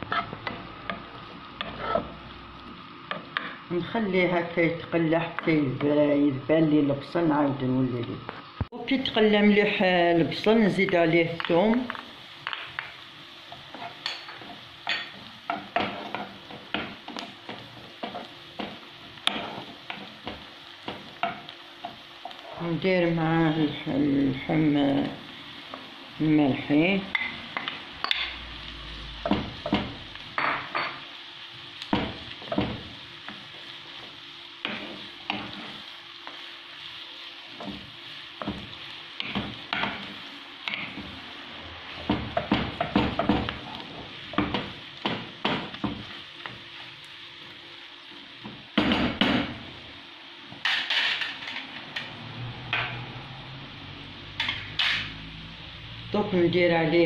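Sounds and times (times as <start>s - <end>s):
wooden spoon scraping a pan: 0.0s - 2.2s, 13.5s - 21.5s, 32.0s - 36.5s
meat sizzling in a frying pan: 0.0s - 57.0s.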